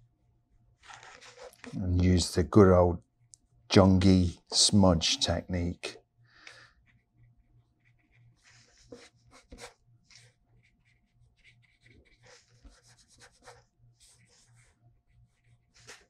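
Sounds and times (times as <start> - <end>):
brush pen scratching on paper: 0.8 - 1.8, 6.8 - 16.0.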